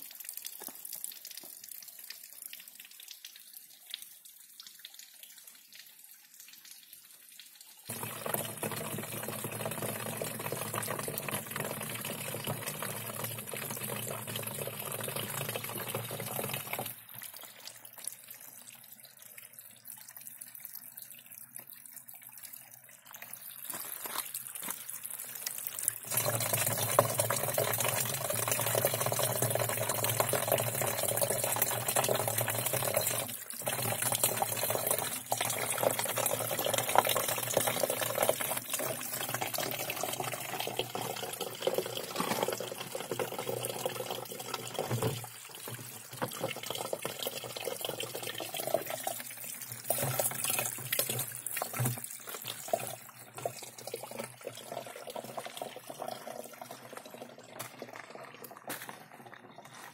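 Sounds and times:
water pouring into plastic bottle: 7.9 - 18.5, 21.4 - 59.9.

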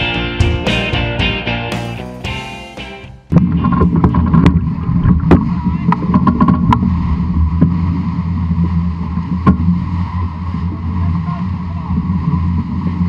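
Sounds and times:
wind buffeting microphone: 3.3 - 13.0.

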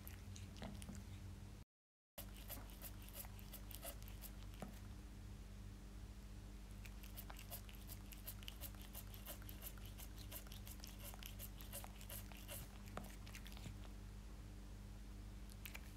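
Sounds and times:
cat licking and chewing: 0.0 - 1.3, 2.2 - 4.9, 6.7 - 14.0, 15.4 - 15.9.

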